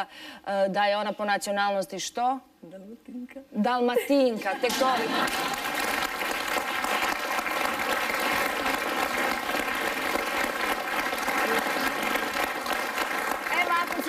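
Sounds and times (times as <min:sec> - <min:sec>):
audience applauding: 0:04.9 - 0:14.0.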